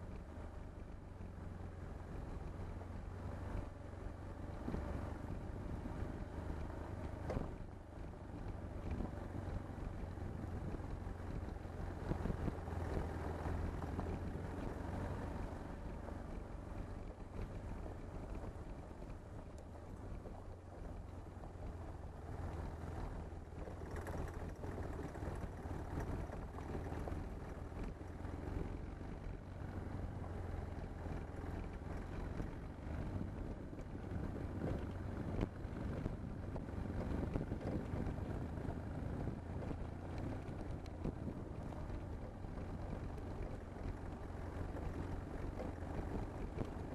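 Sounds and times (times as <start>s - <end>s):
motorcycle engine running: 0.0s - 46.9s
wind noise on microphone: 31.1s - 43.2s.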